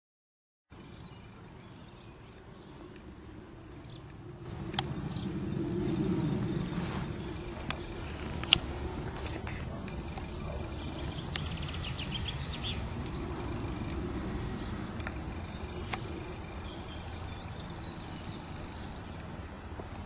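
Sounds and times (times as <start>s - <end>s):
birds chirping and trilling: 0.8s - 3.0s, 3.6s - 20.0s
steady low rumble: 2.4s - 20.0s
sharp clicks: 4.0s - 5.0s, 7.6s - 10.4s, 11.0s - 13.2s, 14.7s - 16.4s.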